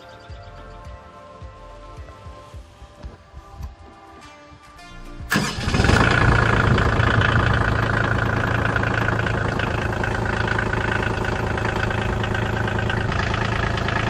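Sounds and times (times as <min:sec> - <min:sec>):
diesel tractor engine idling: 0:05.3 - 0:14.0.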